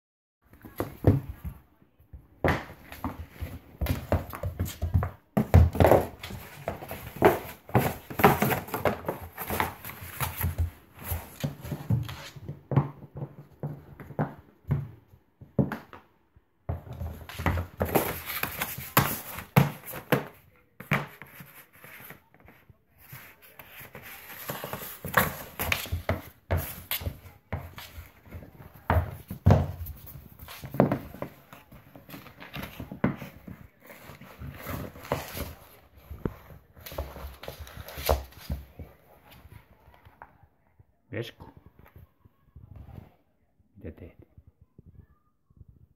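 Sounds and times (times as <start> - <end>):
knocks and scuffs on hard floor: 0.5 - 40.3
cardboard rustling: 2.6 - 12.5, 16.8 - 39.0.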